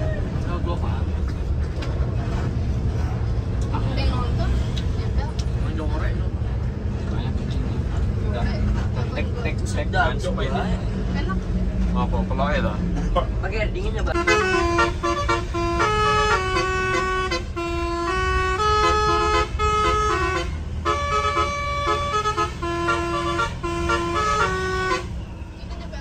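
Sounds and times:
bus engine rumble: 0.0 - 26.0
musical air horn melody: 14.2 - 25.1.

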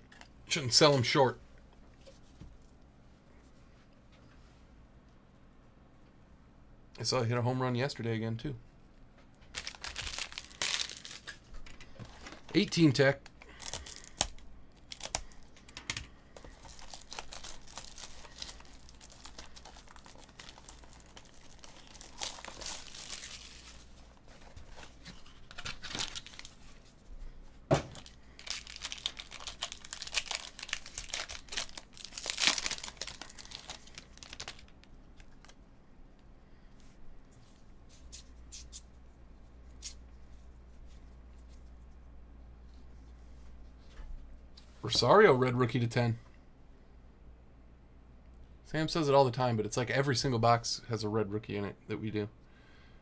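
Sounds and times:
plastic wrapping tearing and crinkling: 9.5 - 11.5, 12.1 - 15.6, 16.4 - 26.8, 27.9 - 35.6.

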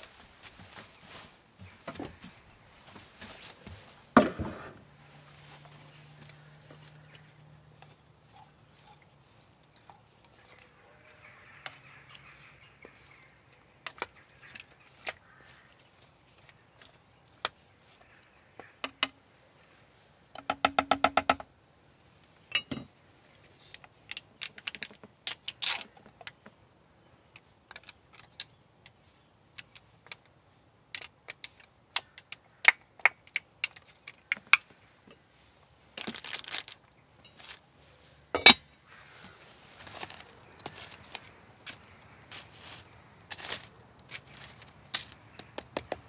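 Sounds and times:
rustle: 0.0 - 20.3, 21.6 - 46.0
wooden spoon knocking in pot: 20.4 - 21.4
utensils set down on table: 38.4 - 38.7.

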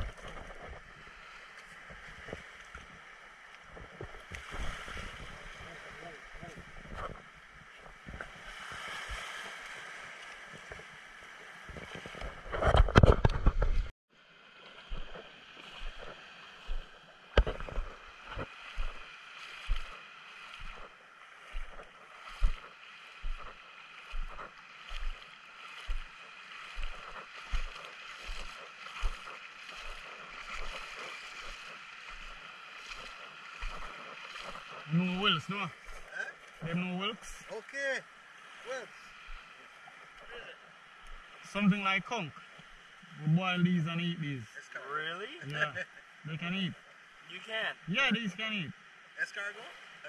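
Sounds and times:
small waves on pebbly shore: 0.0 - 12.8, 14.1 - 43.0
footsteps thudding: 21.6 - 25.2.

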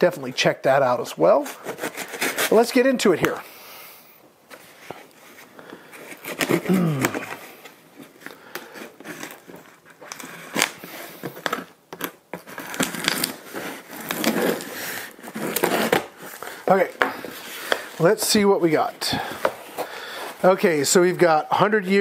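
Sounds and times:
tape and cardboard tearing: 1.4 - 2.7, 6.1 - 7.6, 8.6 - 16.7.

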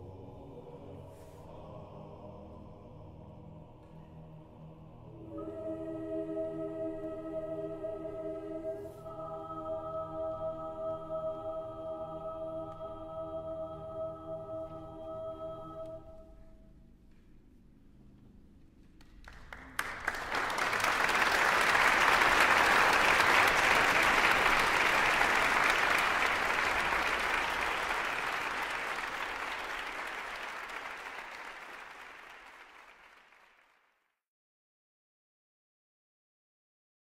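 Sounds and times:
audience applauding: 19.0 - 33.8.

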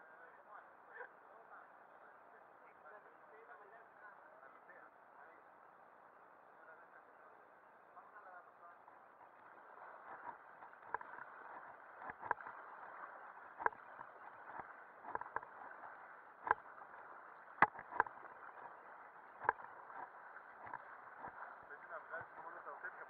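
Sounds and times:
paddles striking water: 8.7 - 23.0
river water rushing: 9.3 - 23.0.

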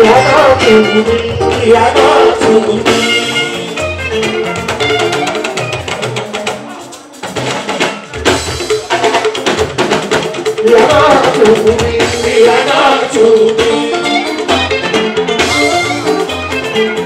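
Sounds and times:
person singing lead: 0.0 - 4.5, 10.6 - 14.7
drum kit: 0.0 - 17.0
live band music: 0.0 - 17.0.

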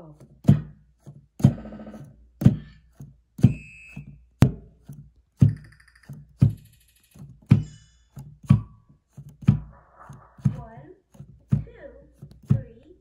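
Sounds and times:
high beeping tones: 3.4 - 4.2.

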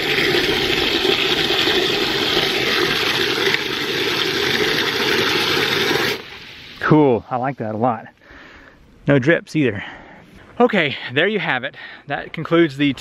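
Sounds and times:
water jetting into bucket: 0.0 - 6.9.

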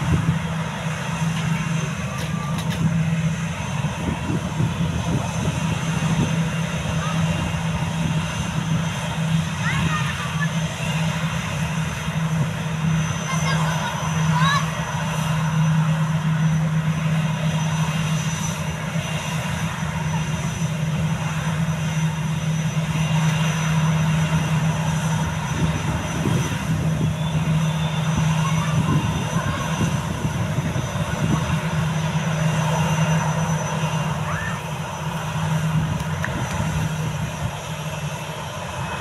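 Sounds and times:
jet engines droning: 0.0 - 39.0
broad rushing noise: 23.7 - 39.0.

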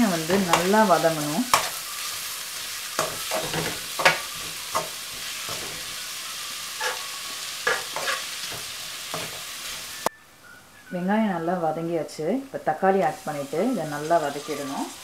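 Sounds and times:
onions sizzling in oil: 0.0 - 10.1, 12.6 - 15.0
metal spatula scraping pan: 0.2 - 6.1, 6.8 - 9.9.

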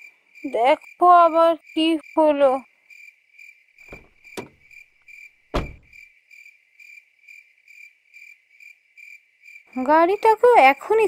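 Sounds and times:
crickets chirping: 0.0 - 11.0
heavy thump: 3.9 - 4.7, 5.5 - 5.9
knocks: 3.9 - 4.7, 5.6 - 5.9.

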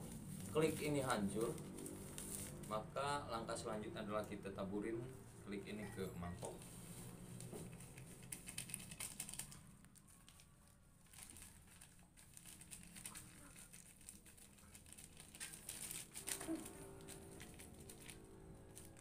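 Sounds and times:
plastic sachets crinkling: 0.0 - 4.7, 5.6 - 19.0.

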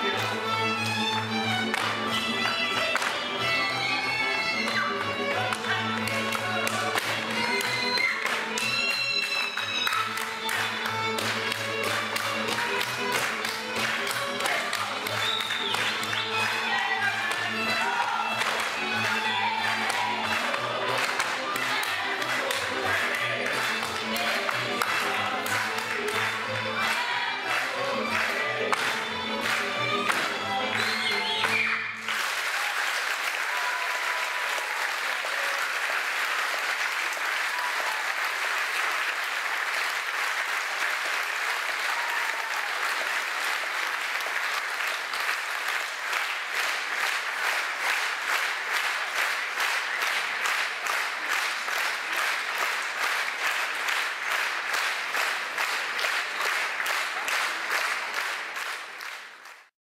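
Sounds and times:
audience applauding: 0.0 - 59.7.

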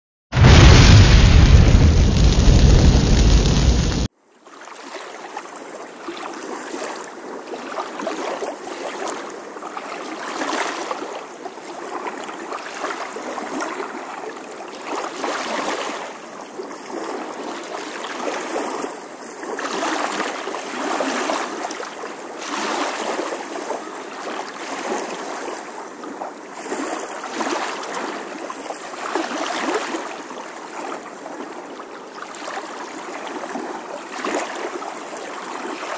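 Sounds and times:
loud blast-like effect: 0.4 - 4.1
storm wind: 0.4 - 4.1
choppy lake water: 0.4 - 35.9.

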